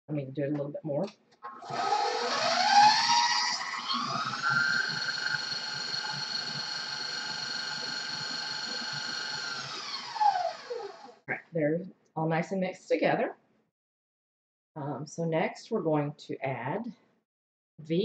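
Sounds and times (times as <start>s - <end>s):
mixer beating in steel bowl: 1.6s - 11.0s
stand mixer motor whining: 1.6s - 11.2s.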